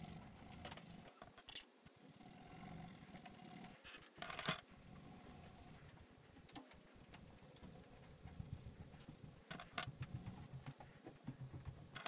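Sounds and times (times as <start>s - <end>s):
pencil clicks: 4.2s - 4.6s.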